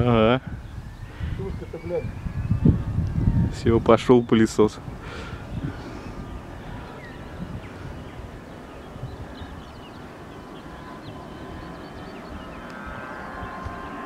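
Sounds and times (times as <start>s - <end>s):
distant jet engines rumbling: 0.0s - 14.0s
small birds chirping: 0.0s - 14.0s.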